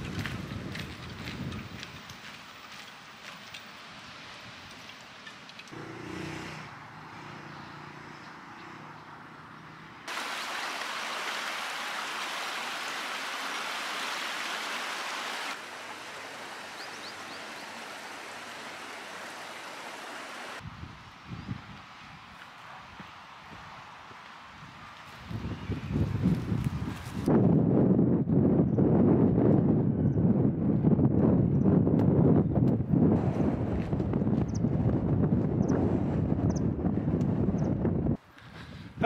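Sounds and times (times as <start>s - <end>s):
faint footsteps: 0.0s - 5.7s
open-air ambience: 0.0s - 27.3s
stream rushing over cascade: 10.1s - 20.6s.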